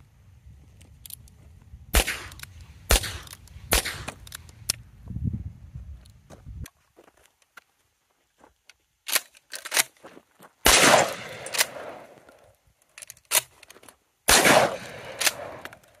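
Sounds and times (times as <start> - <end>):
shotgun blasts echoing: 1.9 - 4.2, 10.6 - 12.2, 14.3 - 15.8.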